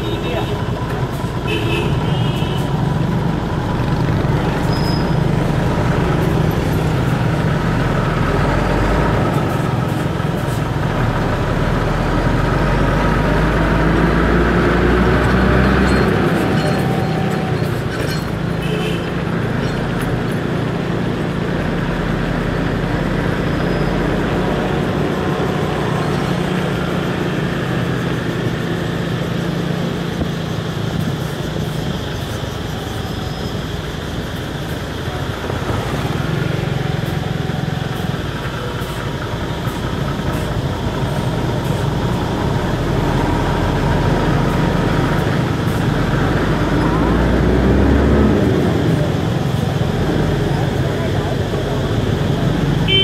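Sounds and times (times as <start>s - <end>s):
road traffic noise: 0.0s - 53.0s
scooter engine running: 24.2s - 42.7s.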